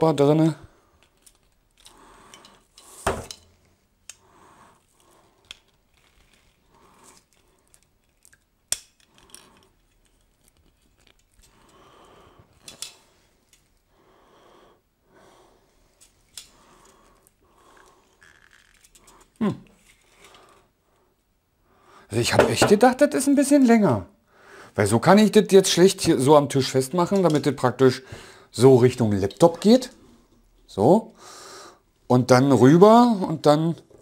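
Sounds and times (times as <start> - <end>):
breathing close to microphone: 1.8 - 3.1, 4.2 - 5.7, 24.3 - 24.8, 28.0 - 28.6, 31.2 - 31.9.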